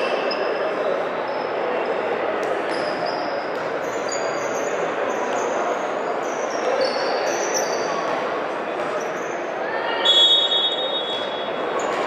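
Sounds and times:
sneakers squeaking on court: 0:00.0 - 0:05.6, 0:06.2 - 0:09.5
crowd hubbub in large hall: 0:00.0 - 0:12.0.

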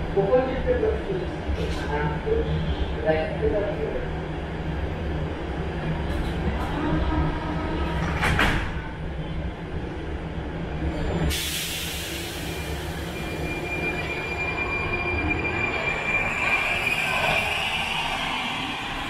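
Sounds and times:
air hiss: 0:11.3 - 0:13.2
train doors shutting: 0:11.3 - 0:14.6.

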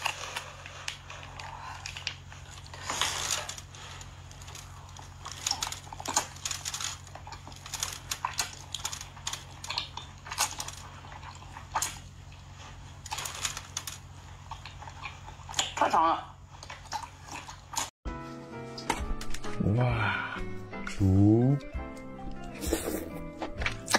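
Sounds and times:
noodles slurped and chewed: 0:00.0 - 0:15.8, 0:16.4 - 0:17.9.

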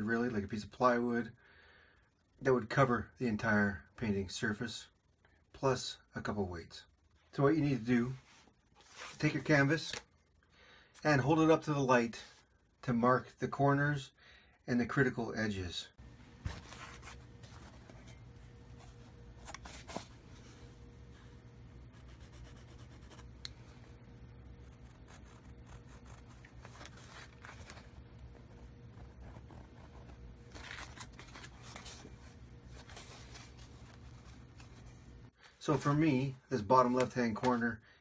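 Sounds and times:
low hum: 0:16.0 - 0:35.4
pencil scratching on canvas: 0:21.9 - 0:23.3, 0:24.6 - 0:26.5, 0:28.9 - 0:30.2.

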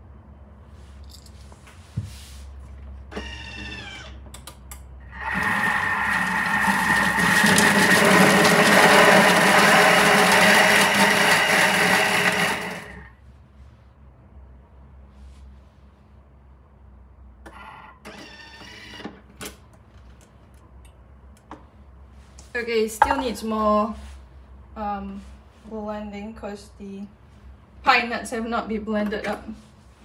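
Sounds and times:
food processor motor running: 0:05.0 - 0:13.1.

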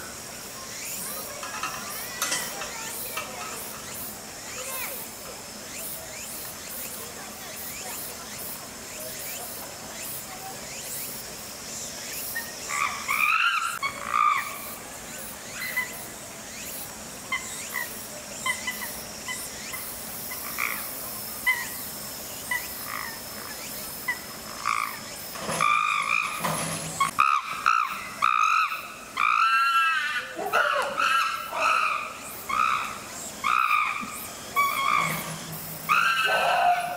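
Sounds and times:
chimpanzees calling: 0:12.3 - 0:14.8, 0:15.4 - 0:16.6, 0:17.2 - 0:36.9.

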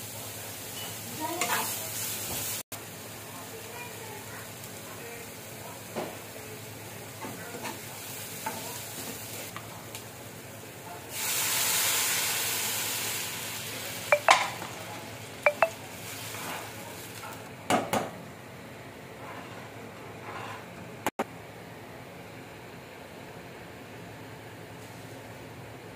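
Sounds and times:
water hissing in hot pan: 0:00.0 - 0:05.6, 0:11.0 - 0:14.2
vegetables frying in a pan: 0:00.0 - 0:18.2
metal spoon tapping a pan: 0:14.2 - 0:14.5, 0:15.5 - 0:15.8.

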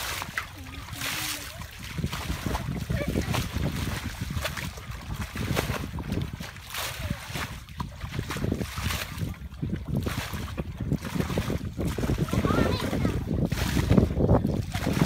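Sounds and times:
water splashes: 0:00.0 - 0:15.0
wind rumbling on microphone: 0:00.0 - 0:15.0.

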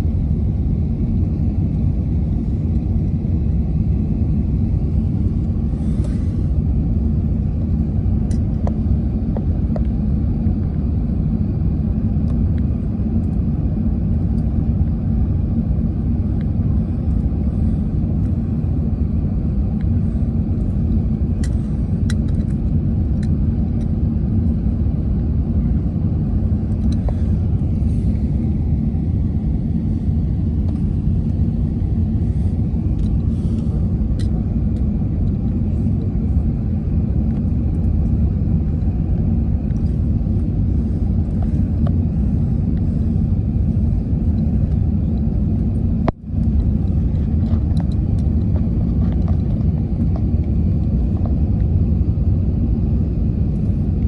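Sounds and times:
airplane cabin engine rumble: 0:00.0 - 0:54.0.

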